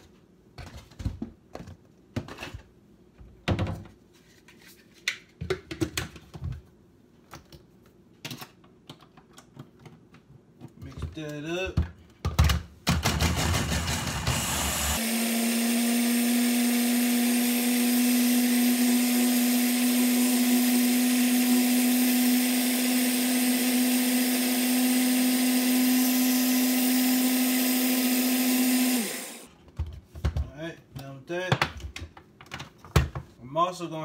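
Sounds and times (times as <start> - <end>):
electric blender motor: 12.9 - 29.5.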